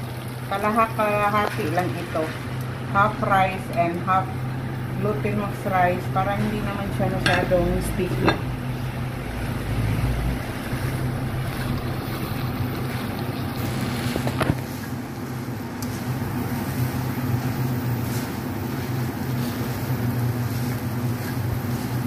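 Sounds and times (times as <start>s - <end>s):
steady low hum: 0.0s - 22.0s
spatula stirring rice in a wok: 10.6s - 22.0s.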